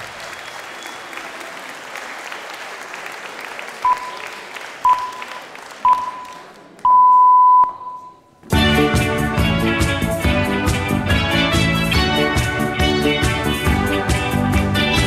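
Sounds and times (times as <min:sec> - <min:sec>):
applause: 0:00.0 - 0:06.9
electronic countdown beeps: 0:03.9 - 0:04.2, 0:04.9 - 0:08.3.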